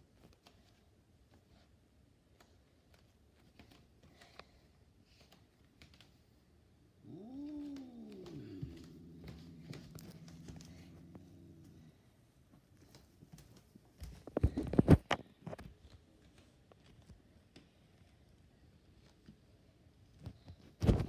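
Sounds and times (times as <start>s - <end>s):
cat yowling: 7.0s - 11.7s
cat growling: 7.0s - 12.2s.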